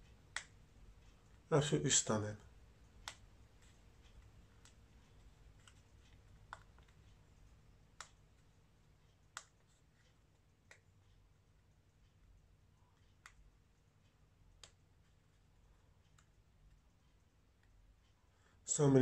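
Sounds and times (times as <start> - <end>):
small sharp clicks: 2.9 - 3.3.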